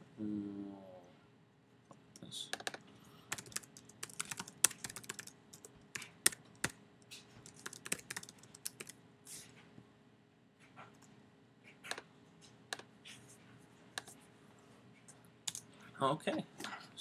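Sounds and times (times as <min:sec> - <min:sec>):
computer keyboard typing: 0:02.6 - 0:09.0.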